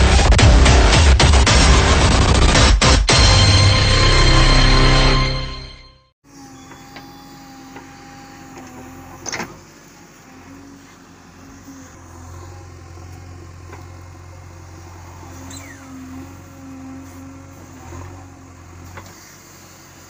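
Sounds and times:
higher tone over engine: 0:03.2 - 0:20.0
backhoe digging soil: 0:06.3 - 0:20.0
diesel engine running under load: 0:06.3 - 0:20.0.

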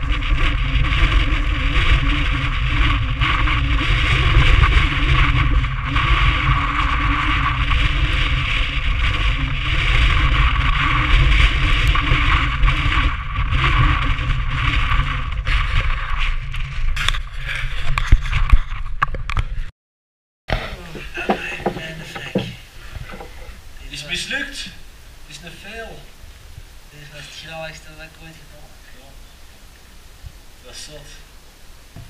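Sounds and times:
wind buffeting microphone: 0:00.0 - 0:19.7, 0:20.7 - 0:30.6
sharp knocks: 0:20.5 - 0:23.5.

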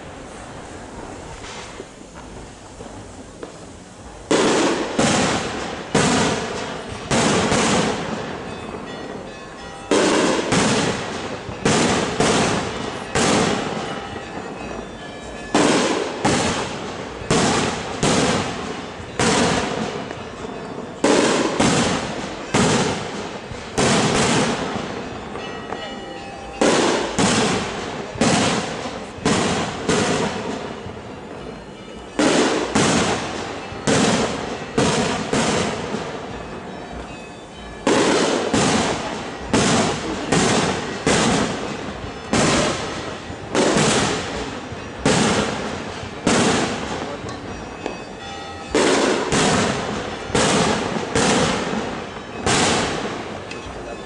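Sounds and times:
fireworks banging: 0:00.0 - 0:54.0.

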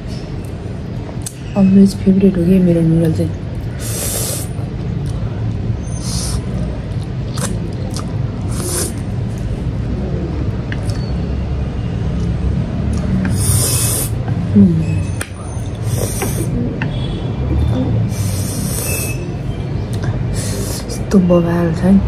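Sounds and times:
steady low rumble: 0:00.0 - 0:18.6
person slurping noodles: 0:03.8 - 0:04.6, 0:08.5 - 0:09.1, 0:13.2 - 0:14.2, 0:15.8 - 0:16.6, 0:18.1 - 0:19.2.

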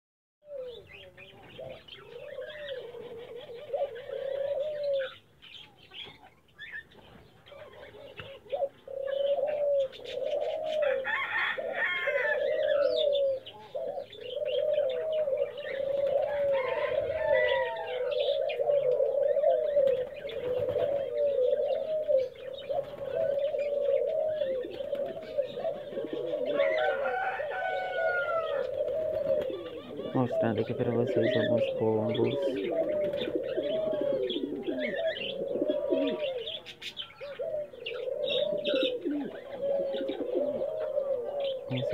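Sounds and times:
pigeons cooing: 0:00.4 - 0:41.9.

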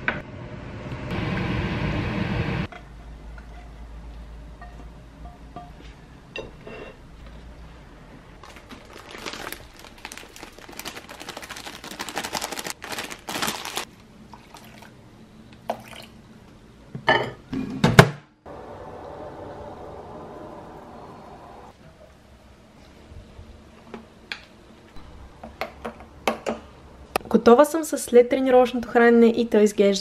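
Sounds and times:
water pouring into bowl: 0:14.3 - 0:14.9, 0:15.7 - 0:16.2.

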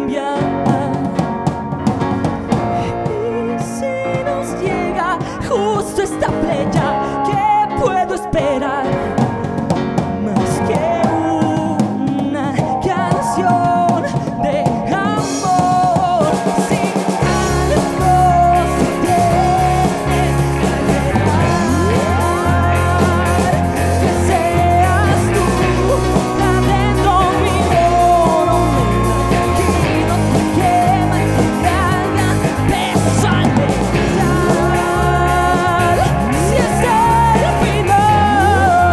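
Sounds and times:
lead vocalist singing: 0:00.0 - 0:38.9
live rock band playing: 0:00.0 - 0:38.9.

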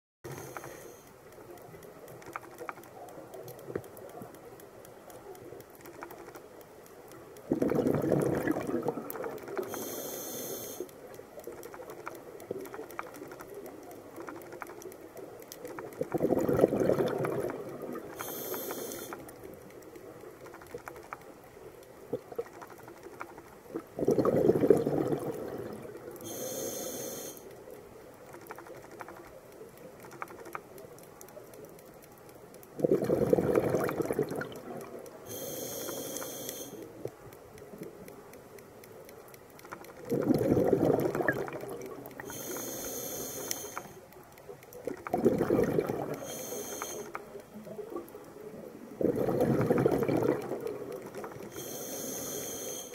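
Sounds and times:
regulator inhale hiss: 0:00.3 - 0:01.1, 0:09.6 - 0:11.0, 0:18.1 - 0:19.3, 0:26.2 - 0:27.6, 0:35.3 - 0:37.0, 0:42.2 - 0:44.0, 0:46.1 - 0:47.3, 0:51.3 - 0:52.9
exhaled bubbles bursting: 0:07.5 - 0:09.6, 0:16.0 - 0:18.1, 0:23.7 - 0:26.0, 0:32.8 - 0:35.0, 0:40.0 - 0:42.3, 0:44.8 - 0:46.2, 0:48.9 - 0:51.5.

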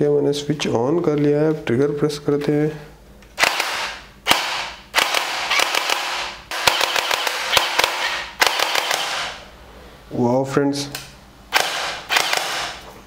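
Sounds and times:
toy blaster rapid shots: 0:03.4 - 0:09.4, 0:11.5 - 0:12.8.

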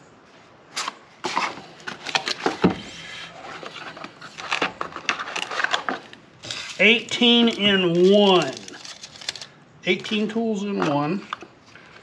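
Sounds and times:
cardboard scraping and rustling: 0:00.8 - 0:09.4.

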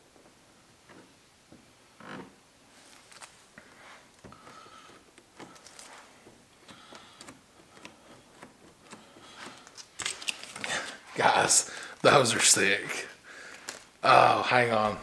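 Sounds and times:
hands handling small parts: 0:04.2 - 0:12.3, 0:13.5 - 0:14.0.

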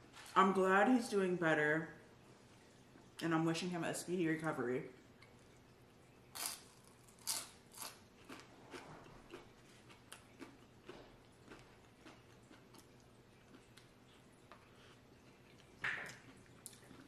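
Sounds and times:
chewing crunchy chip: 0:06.3 - 0:17.0.

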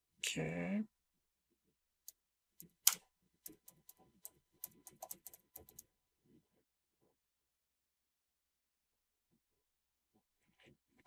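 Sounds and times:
keyboard typing: 0:02.1 - 0:05.9.

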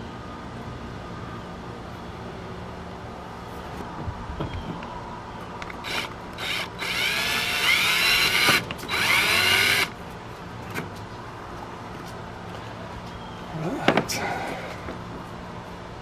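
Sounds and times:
cordless drill drilling plastic: 0:05.8 - 0:09.9.

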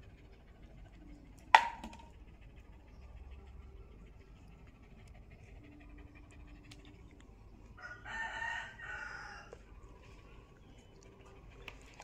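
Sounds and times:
rooster crowing: 0:07.8 - 0:09.6.

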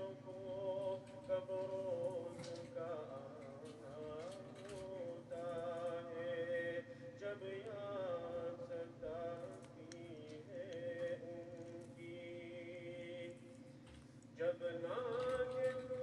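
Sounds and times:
person singing a slow chant: 0:00.0 - 0:13.5, 0:14.4 - 0:16.0.

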